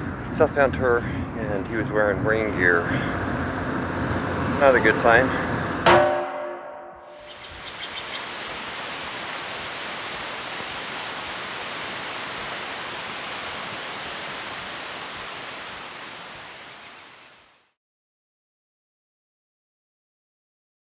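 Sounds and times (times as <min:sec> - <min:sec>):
steady rushing noise: 0:00.0 - 0:17.7.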